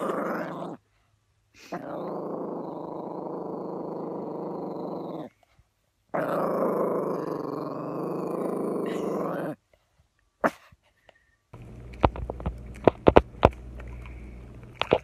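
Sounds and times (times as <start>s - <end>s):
dog growling: 0.0s - 0.8s, 1.6s - 5.4s, 6.1s - 9.6s.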